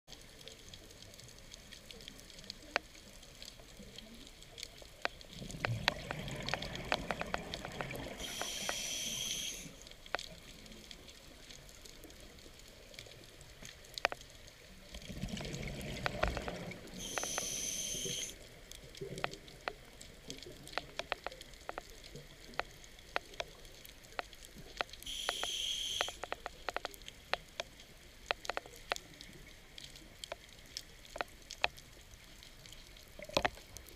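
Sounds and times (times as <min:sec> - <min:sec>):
crackle of sharp clicks: 0:00.1 - 0:33.9
scuba regulator breathing bubbles: 0:05.9 - 0:09.8, 0:15.3 - 0:18.4
regulator inhale hiss: 0:08.2 - 0:09.9, 0:17.0 - 0:18.4, 0:25.0 - 0:26.2.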